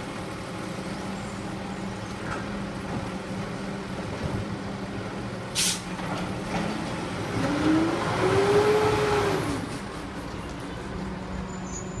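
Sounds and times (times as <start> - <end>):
air hiss: 5.6 - 5.9
engine revving: 7.3 - 9.6.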